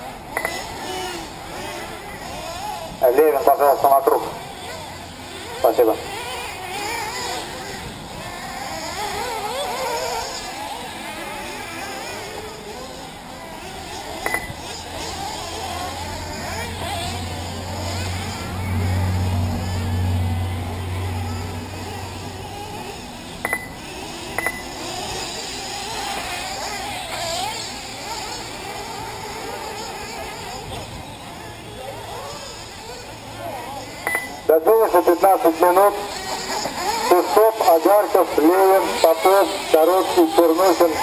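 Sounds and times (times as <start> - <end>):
outdoor background noise: 0.0 - 41.0
rc car engines whining: 0.0 - 41.0
short double electronic beep: 23.4 - 23.8, 24.4 - 24.6, 34.1 - 34.4.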